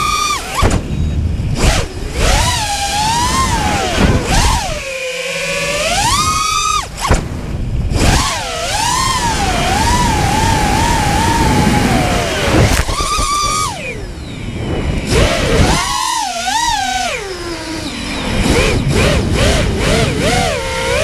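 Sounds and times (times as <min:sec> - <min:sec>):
drone motors whining: 0:00.0 - 0:21.0
wind rushing: 0:00.6 - 0:05.0, 0:05.6 - 0:16.1.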